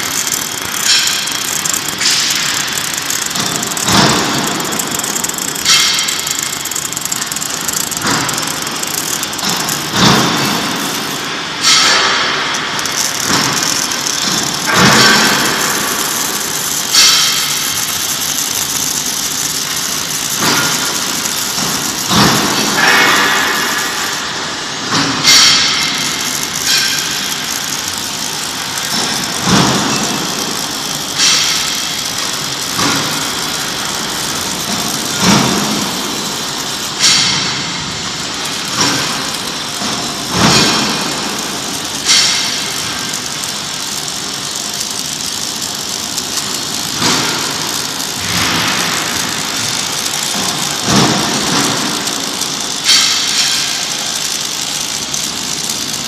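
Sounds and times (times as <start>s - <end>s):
welding arc crackling and hissing: 0.0s - 56.0s.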